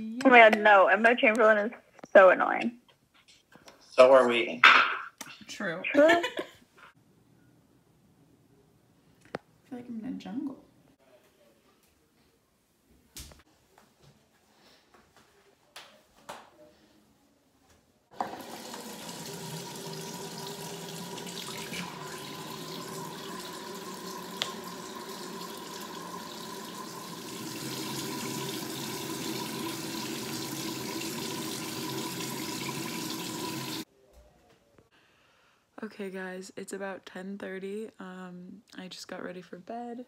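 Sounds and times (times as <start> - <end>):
sink tap running: 18.1 - 33.8.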